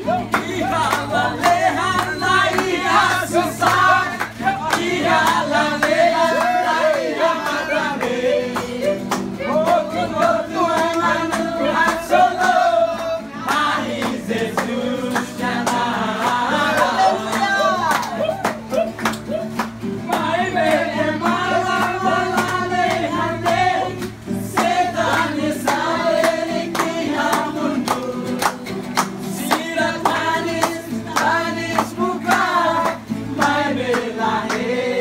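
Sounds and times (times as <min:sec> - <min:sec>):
group singing: 0:00.0 - 0:35.0
strummed acoustic guitar: 0:00.0 - 0:35.0.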